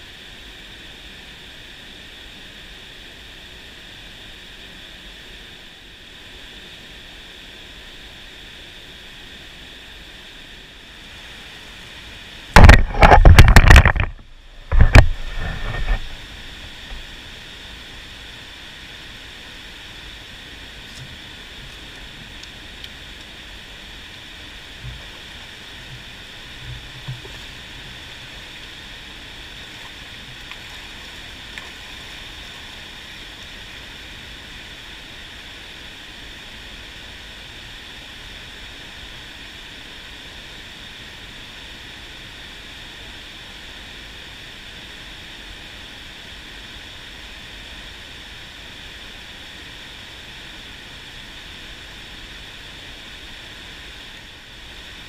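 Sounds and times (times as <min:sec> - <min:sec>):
fast-flowing stream rushing: 0:11.0 - 0:35.8.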